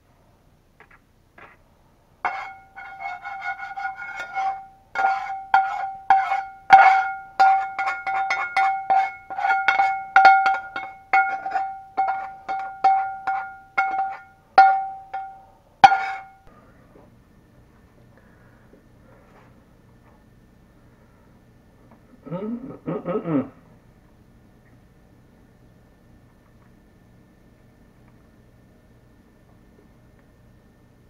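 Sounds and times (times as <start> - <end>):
metal spatula scraping skillet: 2.2 - 16.5
pan ringing: 2.3 - 16.5.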